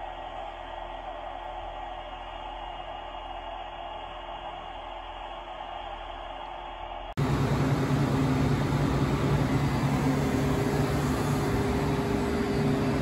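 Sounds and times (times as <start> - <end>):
machine humming: 7.2 - 13.0.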